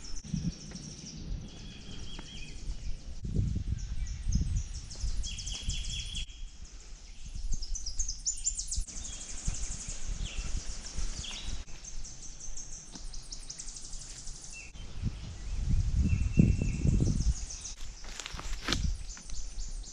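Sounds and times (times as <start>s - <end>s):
low whistled bird notes: 0.0s - 17.8s.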